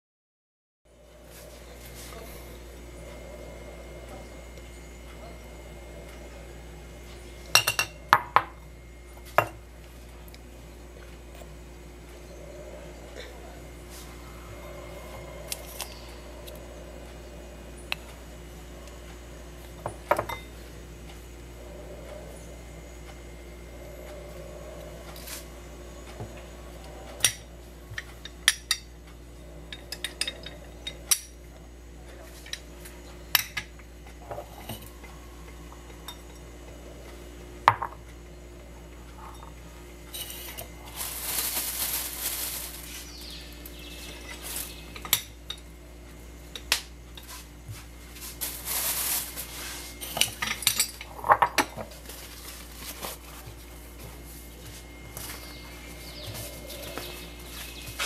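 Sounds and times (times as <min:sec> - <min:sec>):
rustling: 0:40.2 - 0:44.8, 0:47.3 - 0:50.1.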